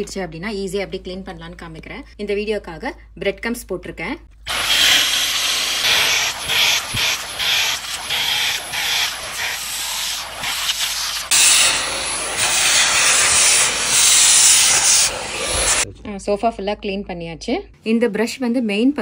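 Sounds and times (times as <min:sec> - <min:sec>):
cordless vacuum running: 0:04.5 - 0:15.8.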